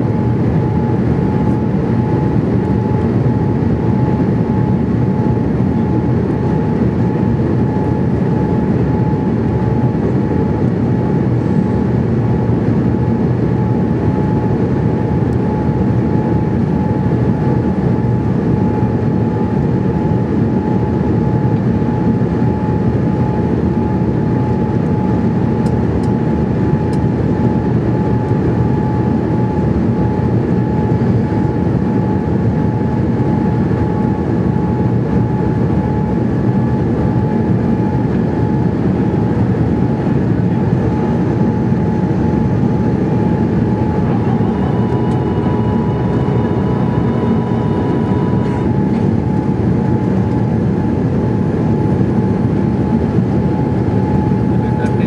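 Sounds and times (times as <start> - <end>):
steady whine: 0.0 - 55.0.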